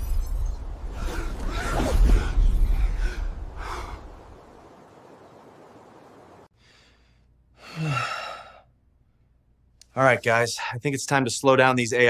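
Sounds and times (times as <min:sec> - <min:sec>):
breathy vocal outbursts: 0:07.6 - 0:08.6
man sighing heavily: 0:07.6 - 0:08.7.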